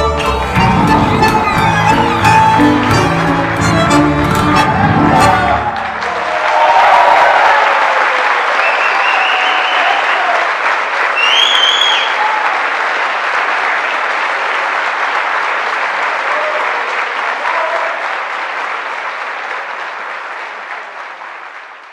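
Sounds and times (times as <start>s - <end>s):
audience applauding: 0.0s - 21.9s
short shrill whistle: 8.6s - 10.0s, 11.2s - 12.2s.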